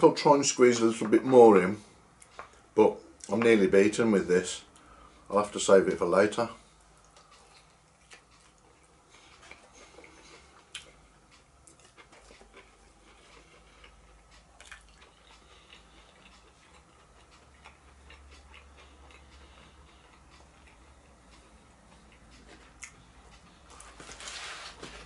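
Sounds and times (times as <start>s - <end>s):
soft chewing: 2.1s - 3.6s, 6.6s - 25.0s.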